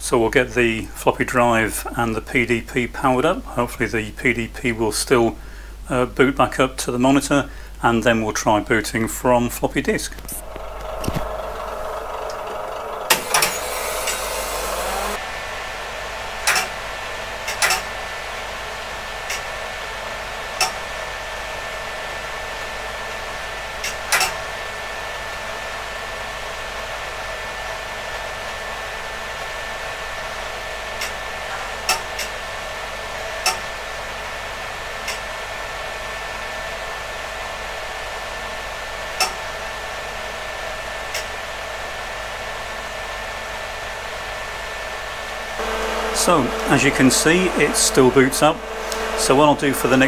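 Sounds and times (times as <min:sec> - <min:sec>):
faint hum: 0:00.0 - 0:24.1, 0:44.6 - 0:50.0
cooling fans whirring: 0:00.0 - 0:50.0.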